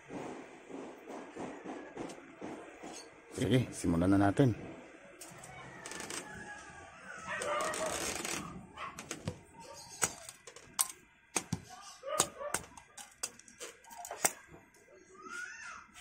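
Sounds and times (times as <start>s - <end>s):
rooster crowing: 5.3s - 9.0s
plastic clicking and knocking: 9.0s - 14.4s.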